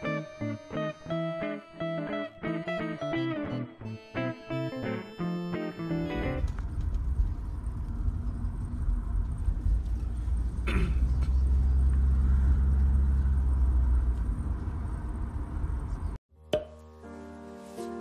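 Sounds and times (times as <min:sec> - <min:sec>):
car road rumble: 0:06.3 - 0:16.2.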